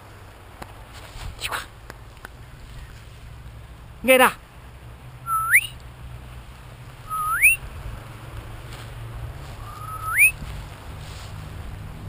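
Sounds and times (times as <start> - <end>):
person whistling: 5.3 - 5.8, 7.1 - 7.6, 9.6 - 10.4.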